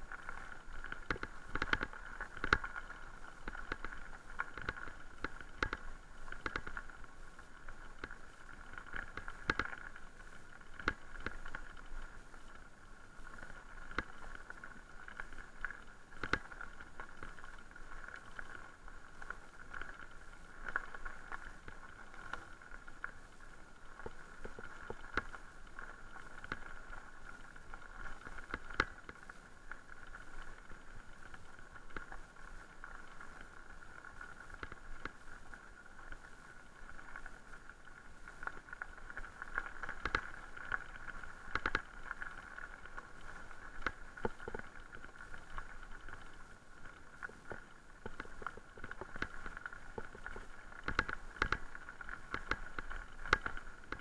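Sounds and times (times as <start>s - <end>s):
bike tyres on gravel: 0.0s - 54.0s
clicks and knocks from stones: 0.1s - 7.0s, 10.6s - 12.2s, 13.4s - 23.2s, 23.8s - 29.3s, 38.4s - 54.0s.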